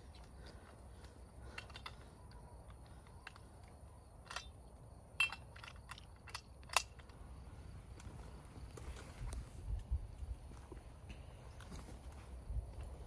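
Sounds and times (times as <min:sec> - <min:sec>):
rifle metallic clicks: 0:05.2 - 0:07.2.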